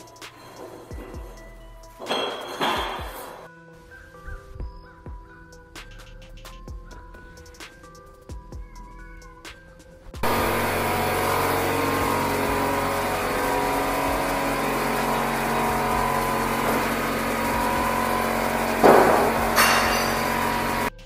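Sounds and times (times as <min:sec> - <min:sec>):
small engine running: 0:10.2 - 0:20.9.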